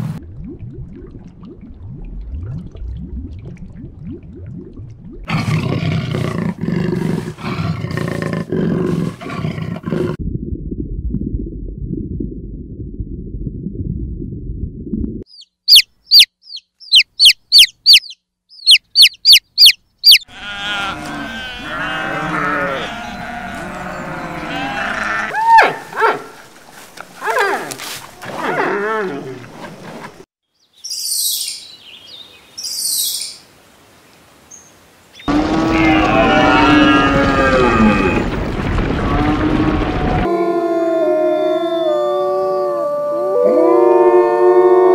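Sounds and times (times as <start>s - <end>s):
baby chicks peeping: 15.3s - 20.2s
assorted animal calls: 15.7s - 26.2s.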